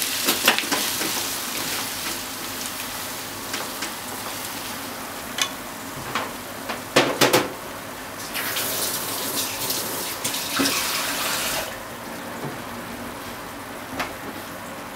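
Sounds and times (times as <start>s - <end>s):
food sizzling in a frying pan: 0.0s - 6.6s, 8.2s - 11.8s.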